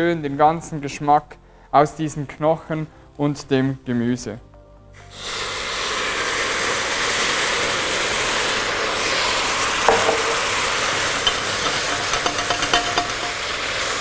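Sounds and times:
wine sizzling in a hot pot: 5.0 - 14.0
wooden spoon knocking on pot: 9.8 - 13.6.

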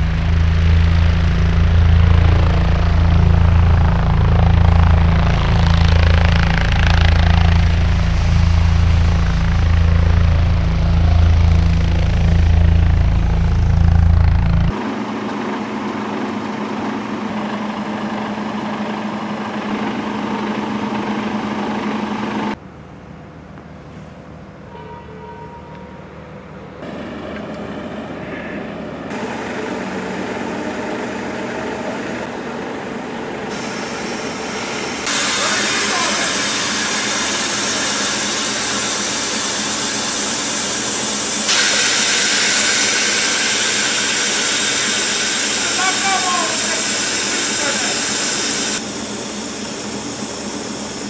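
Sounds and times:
diesel truck engine idling: 0.0 - 15.0
compressed air hissing: 33.5 - 51.0.

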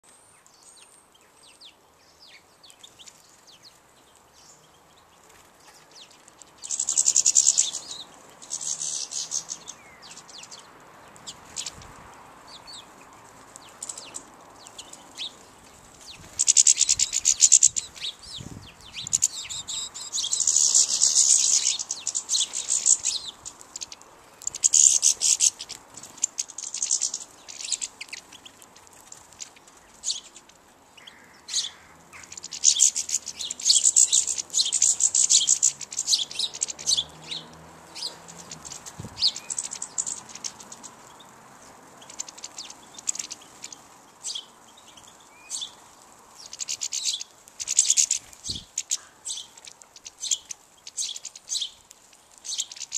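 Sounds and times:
songbirds twittering: 0.0 - 52.9
bird trilling: 6.6 - 10.6, 13.7 - 28.5, 29.4 - 41.2, 42.0 - 44.6, 46.4 - 51.8.

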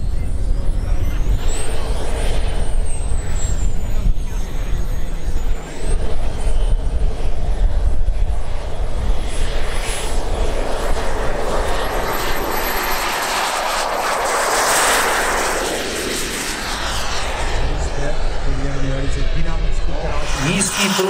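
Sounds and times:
wind rumbling on microphone: 0.0 - 20.7
model jet turbine whining: 0.0 - 21.0
rushing jet noise: 5.7 - 21.0.

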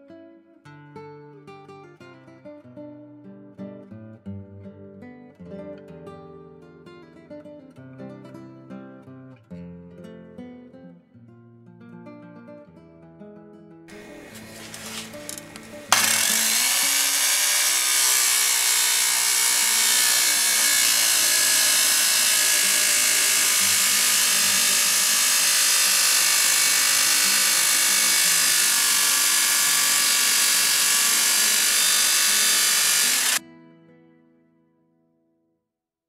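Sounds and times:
saw grinding through metal sheet: 13.9 - 33.4.

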